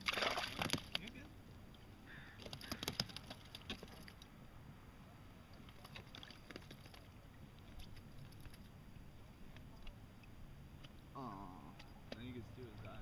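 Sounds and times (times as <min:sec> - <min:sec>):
light water sounds: 0:05.3 - 0:11.1.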